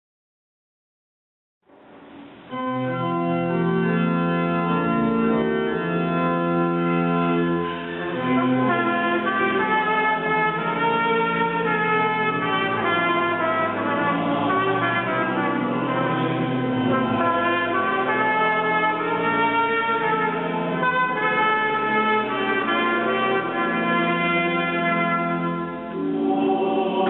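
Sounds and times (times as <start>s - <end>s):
organ sustained chords: 1.7s - 27.0s
trumpet playing melody: 6.8s - 27.0s.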